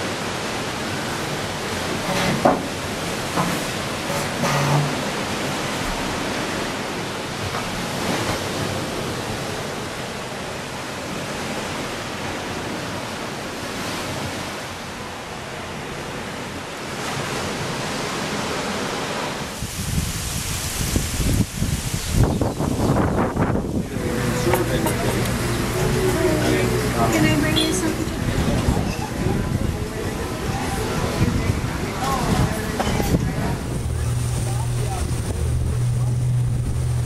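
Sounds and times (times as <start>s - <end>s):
ocean surf breaking: 0.0s - 37.0s
wind buffeting microphone: 19.5s - 37.0s.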